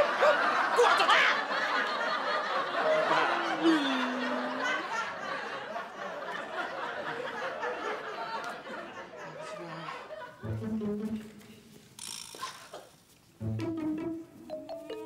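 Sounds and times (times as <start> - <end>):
crowd laughing: 0.0 - 10.9.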